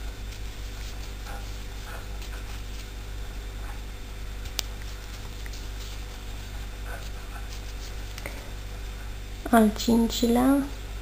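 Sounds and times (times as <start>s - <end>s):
crochet hook rustling yarn: 0.0s - 3.0s, 4.4s - 8.6s
low electrical hum: 0.0s - 11.0s.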